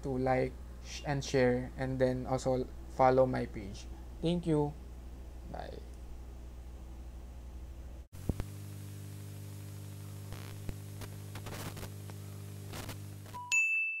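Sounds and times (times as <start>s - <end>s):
electrical hum: 0.0s - 13.4s
static hiss: 7.4s - 13.4s
static crackles: 8.0s - 13.4s.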